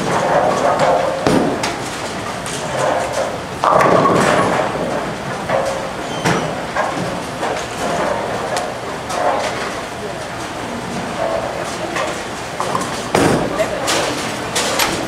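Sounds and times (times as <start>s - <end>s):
bowling pins crashing: 0.0s - 8.5s, 11.0s - 15.0s
bowling ball rolling: 0.0s - 9.8s.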